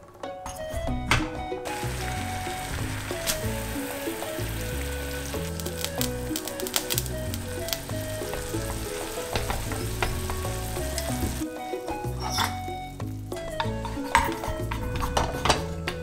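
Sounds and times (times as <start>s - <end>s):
background music with bass line: 0.5s - 16.0s
water boiling in a pan: 1.7s - 14.9s
chopsticks clicking while stirring: 5.4s - 8.0s.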